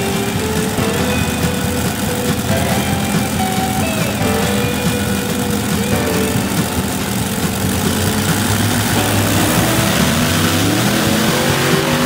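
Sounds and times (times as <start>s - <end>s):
tractor engines revving: 0.0s - 12.0s.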